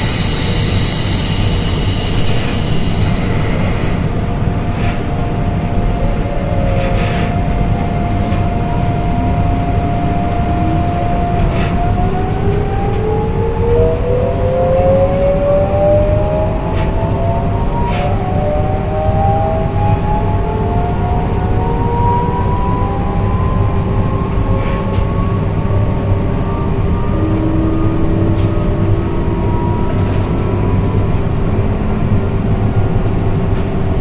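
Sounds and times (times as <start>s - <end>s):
train inverter whine rising: 0.0s - 34.0s
train running gear rumble: 0.0s - 34.0s.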